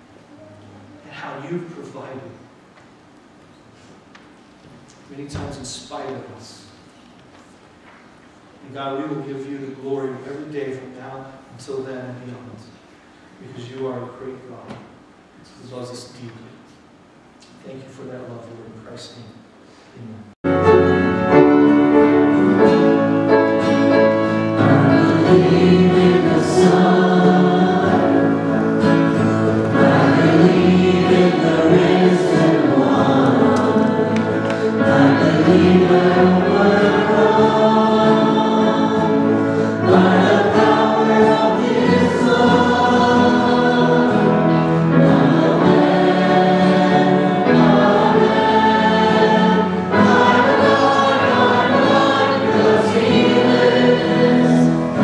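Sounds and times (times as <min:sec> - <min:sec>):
acoustic and electric guitars: 0:20.5 - 0:55.0
many voices singing along: 0:22.2 - 0:55.0.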